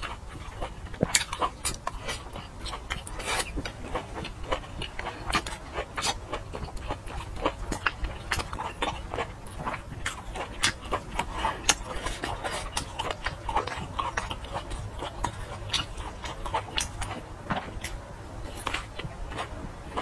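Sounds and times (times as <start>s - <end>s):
person chewing with mouth clicks: 0.0s - 20.0s.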